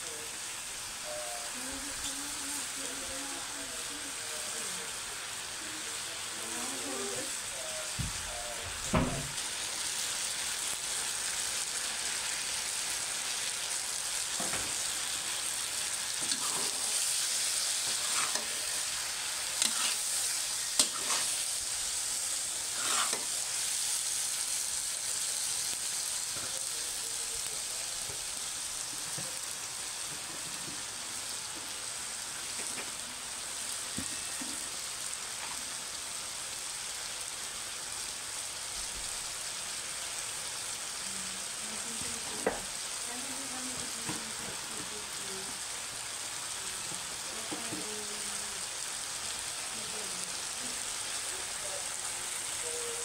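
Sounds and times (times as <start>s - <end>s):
food sizzling in a wok: 0.0s - 53.0s
spatula scraping and knocking pan: 20.8s - 21.3s, 22.8s - 23.3s.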